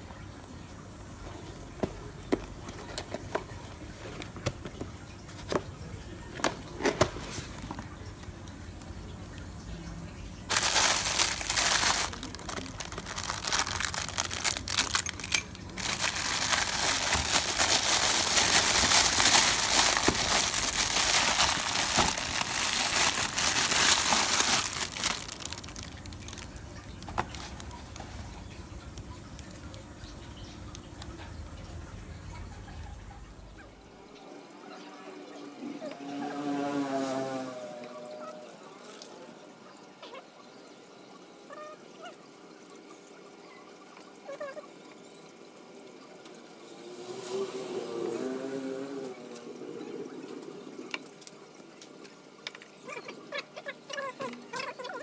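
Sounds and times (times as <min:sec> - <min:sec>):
plastic bag crinkling: 0:10.5 - 0:28.6.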